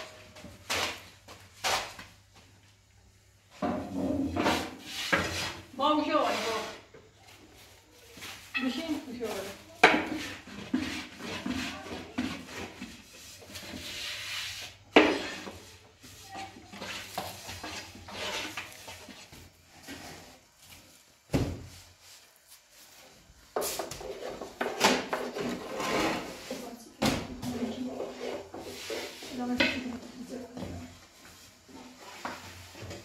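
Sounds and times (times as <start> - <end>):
rolling pin on wooden board: 9.8 - 19.2.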